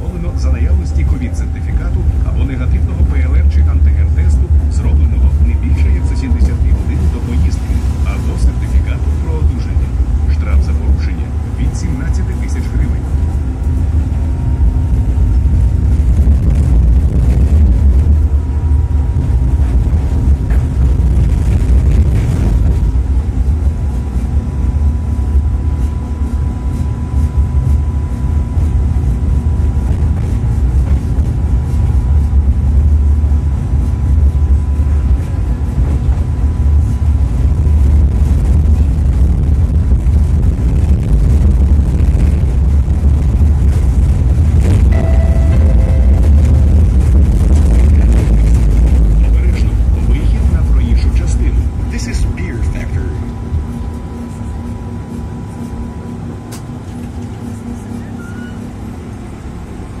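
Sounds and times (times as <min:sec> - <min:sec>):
tram low rumble: 0:00.0 - 1:00.0
thin steady hum: 0:44.7 - 0:49.2
faint high whine: 0:44.7 - 0:49.8.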